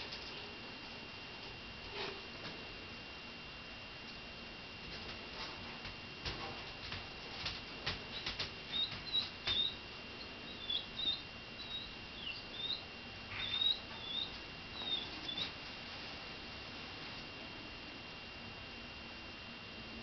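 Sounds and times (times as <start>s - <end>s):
puppy whimpering squeaks: 13.4s - 15.4s.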